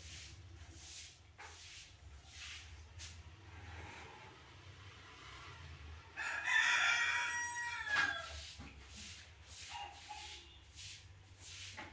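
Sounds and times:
rooster crowing: 6.1 - 8.4.

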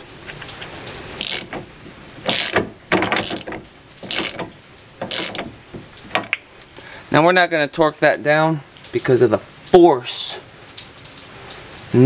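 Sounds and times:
hand ratchet clicking: 1.2 - 6.4.

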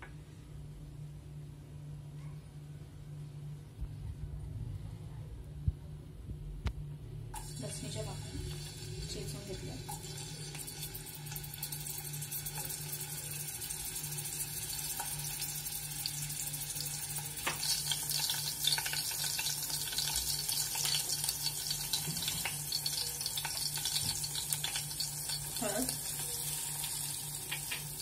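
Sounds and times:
low hum: 0.0 - 18.7
garlic sizzling in hot oil: 7.4 - 28.0.

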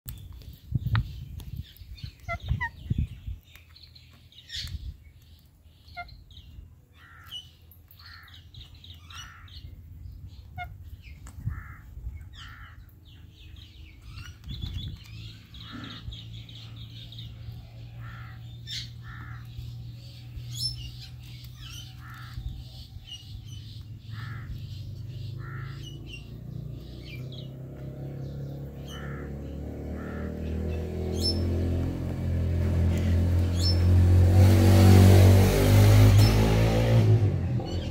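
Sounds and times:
parakeets chirping and calling: 0.7 - 34.1
low engine hum: 8.0 - 37.9.

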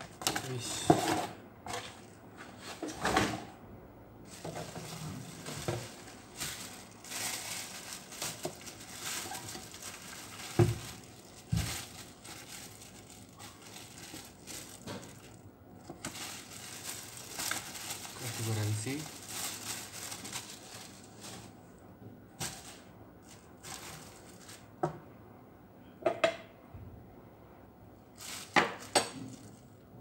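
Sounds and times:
plastic bag crinkling: 0.0 - 0.8, 4.3 - 21.6, 22.4 - 24.8, 28.1 - 29.7.

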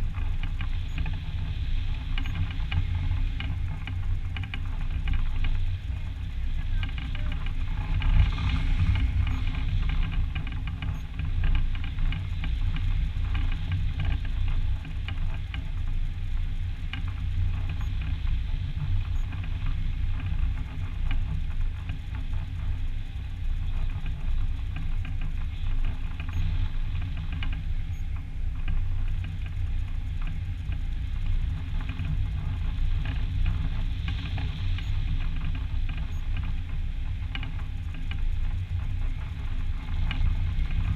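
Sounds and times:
wind rushing over microphone: 0.0 - 40.9.

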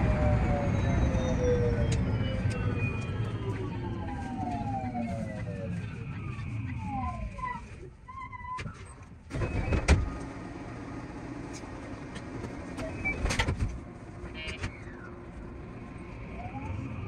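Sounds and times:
electric train low hum: 0.0 - 8.0.

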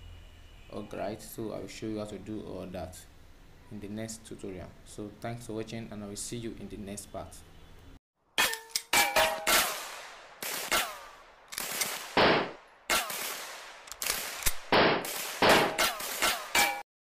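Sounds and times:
submachine gun shots: 9.4 - 16.8.

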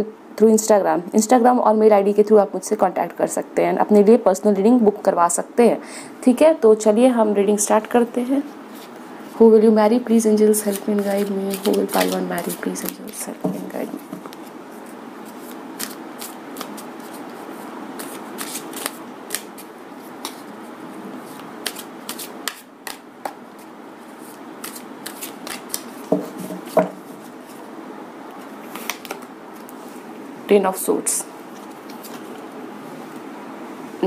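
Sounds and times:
faint steady hiss: 0.0 - 34.0
cards being shuffled: 10.5 - 27.6, 28.4 - 29.8, 31.5 - 32.5.

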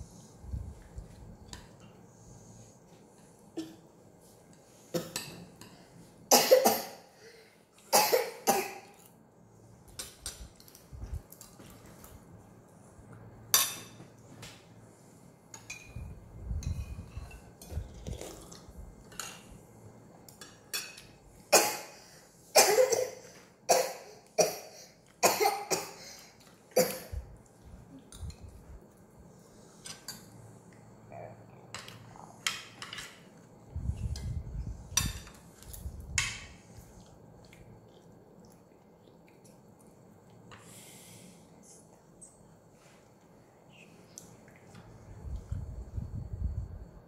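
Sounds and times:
spoons and forks clinking on plates: 15.5 - 16.0
low rumble: 33.7 - 35.2.

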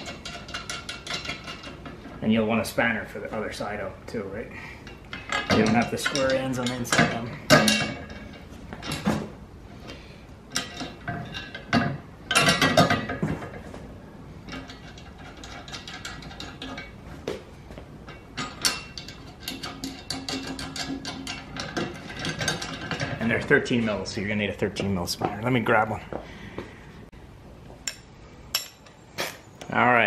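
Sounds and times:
metal bolts clinking and rattling: 0.0 - 2.3, 4.8 - 9.3, 10.5 - 13.8, 14.4 - 17.0, 18.0 - 24.2, 27.8 - 29.8.

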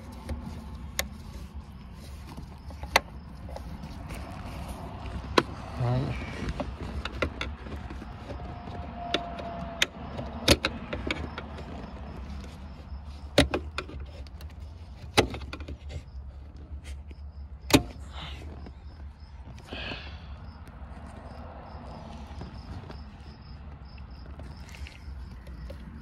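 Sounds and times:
sharp clicks and knocks: 0.0 - 5.8, 6.4 - 18.0.

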